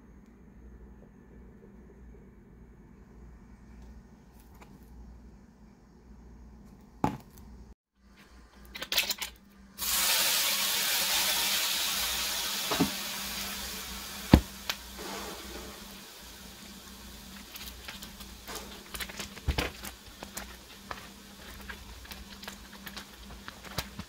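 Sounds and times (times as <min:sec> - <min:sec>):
food sizzling in frying pan: 0:09.8 - 0:24.0.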